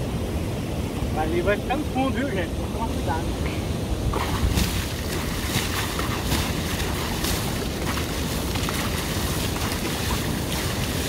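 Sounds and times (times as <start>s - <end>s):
vehicle wading through water: 4.0s - 11.0s.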